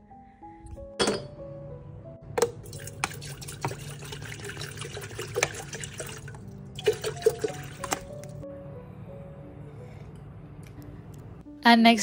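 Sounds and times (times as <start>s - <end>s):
water pouring into metal kettle: 2.4s - 8.1s.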